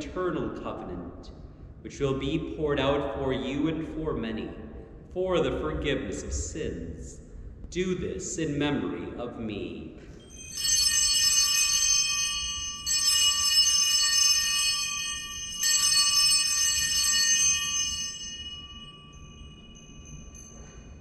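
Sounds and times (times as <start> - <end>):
altar bells jingling: 10.2 - 21.0.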